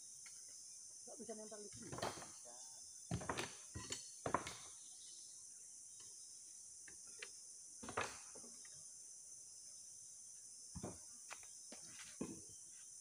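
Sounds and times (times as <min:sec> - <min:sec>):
insect chorus: 0:00.0 - 0:13.0
wooden poles knocking on log: 0:03.1 - 0:04.7, 0:10.8 - 0:11.0.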